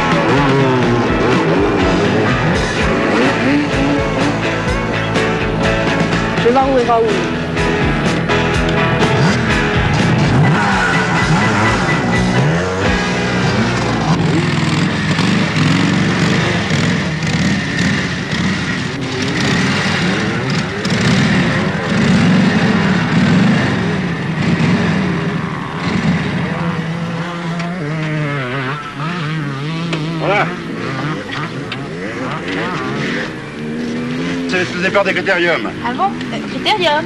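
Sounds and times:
rock music: 0:00.0 - 0:27.2
motorcycle engine running: 0:00.0 - 0:37.0.

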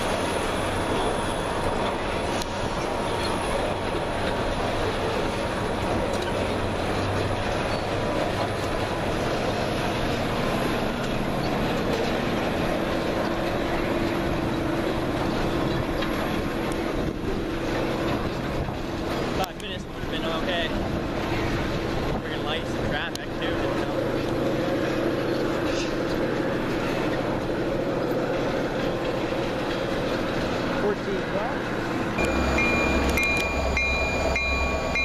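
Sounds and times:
wheel squeal: 0:00.0 - 0:20.7, 0:32.2 - 0:35.0
train wheels rumbling on rails: 0:00.0 - 0:35.0.

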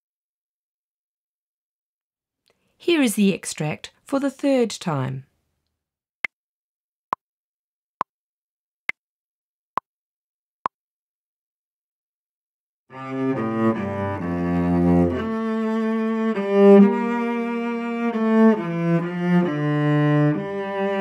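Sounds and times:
instrumental music with low notes: 0:12.9 - 0:21.0.

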